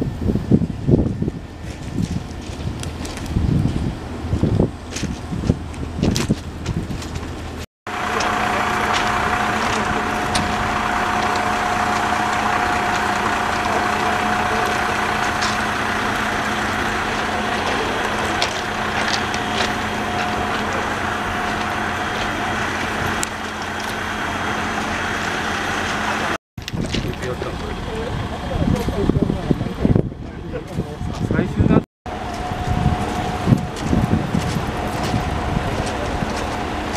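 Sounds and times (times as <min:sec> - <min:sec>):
constant whining tone: 0:00.0 - 0:36.9
diesel locomotive engine idling: 0:00.0 - 0:36.9.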